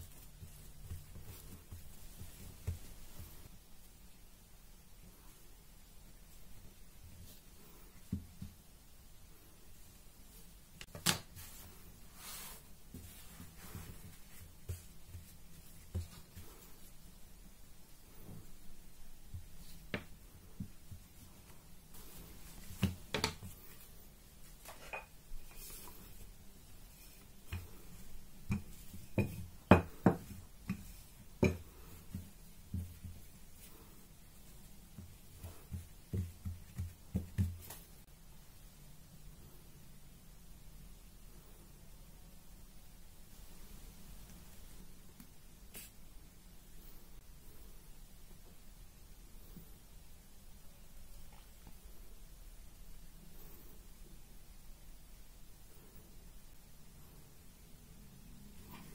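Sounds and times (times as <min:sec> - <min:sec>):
soft thumps of dough handling: 0:00.0 - 0:03.6, 0:06.3 - 0:08.8, 0:09.8 - 0:17.2, 0:17.9 - 0:38.1.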